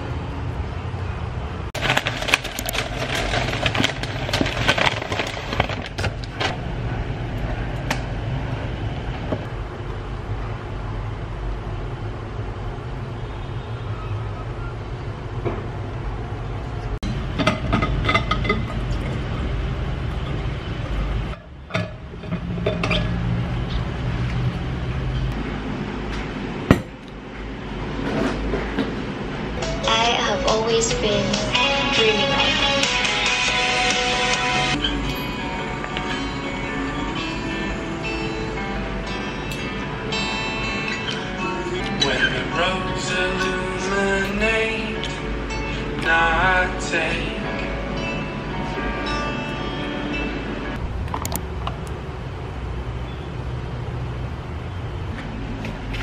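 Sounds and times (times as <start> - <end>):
dishes and utensils clinking: 17.3 - 19.4, 21.3 - 23.3.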